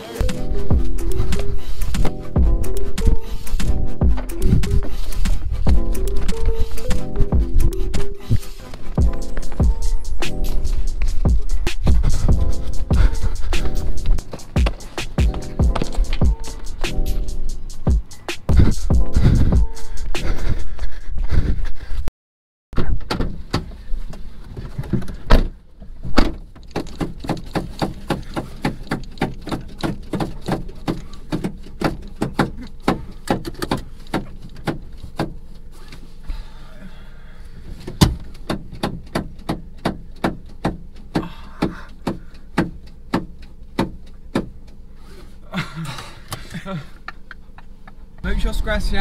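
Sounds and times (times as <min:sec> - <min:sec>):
loud thumps: 0:08.9 - 0:20.6
car indicator ticking: 0:26.5 - 0:35.6, 0:38.0 - 0:45.0.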